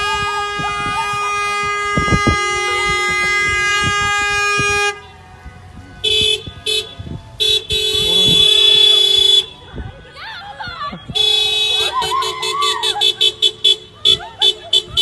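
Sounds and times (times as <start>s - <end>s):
short horn beeps: 0.0s - 5.2s, 7.5s - 9.5s
car horns honking: 0.0s - 10.2s, 10.8s - 15.0s.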